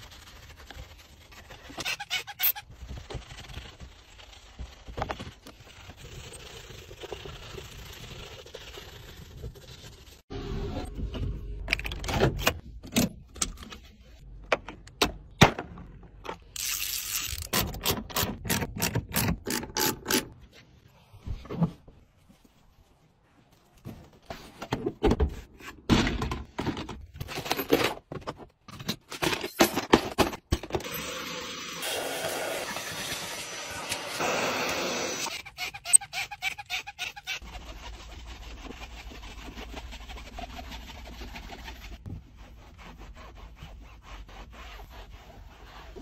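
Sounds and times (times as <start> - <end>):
brushes scrubbing and scraping: 0.0 - 10.3, 31.8 - 46.0.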